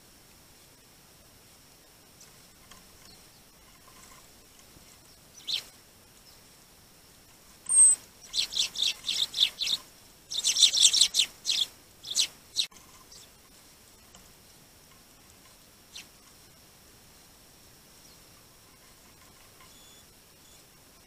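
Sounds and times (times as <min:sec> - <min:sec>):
sparrows chirping: 0:02.9 - 0:06.6, 0:07.6 - 0:13.4, 0:15.9 - 0:16.2, 0:18.0 - 0:20.8.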